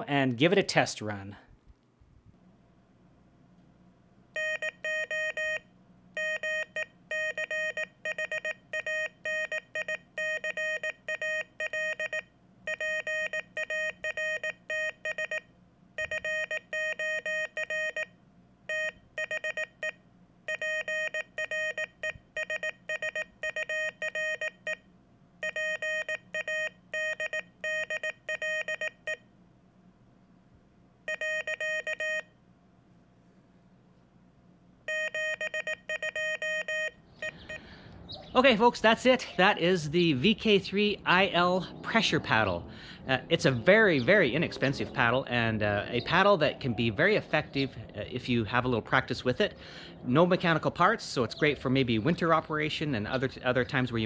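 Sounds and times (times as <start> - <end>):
morse code beeps: 4.4 - 5.6, 6.2 - 15.4, 16.0 - 18.1, 18.7 - 24.8, 25.4 - 29.2, 31.1 - 32.3, 34.9 - 37.6.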